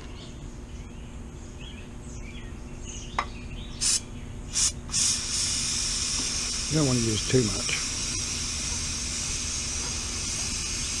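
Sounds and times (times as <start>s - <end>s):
aerosol spray hissing: 3.8s - 11.0s.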